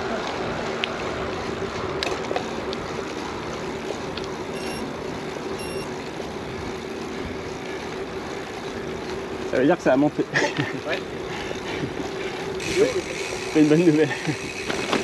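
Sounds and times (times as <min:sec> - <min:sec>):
bike rolling noise: 0:00.0 - 0:15.0
faint steady hum: 0:02.8 - 0:09.2
short electronic beeps: 0:04.6 - 0:04.9, 0:05.6 - 0:05.9.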